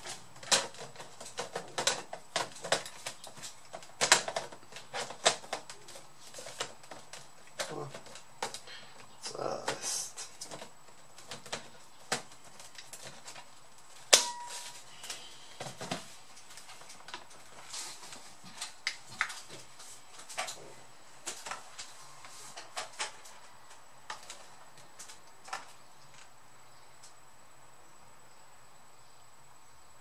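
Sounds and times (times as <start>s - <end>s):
laptop plastic clicks and knocks: 0.0s - 8.7s.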